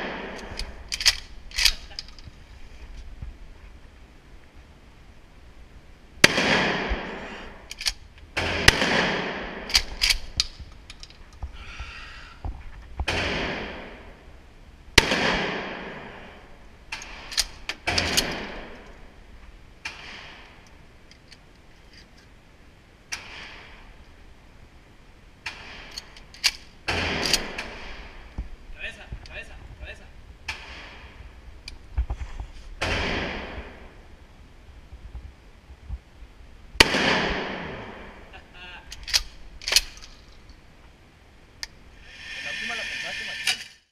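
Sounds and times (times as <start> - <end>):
gunshots echoing indoors: 0.0 - 1.7, 6.2 - 7.6, 8.4 - 10.3, 13.1 - 14.2, 15.0 - 18.9, 32.8 - 34.1, 36.8 - 38.3.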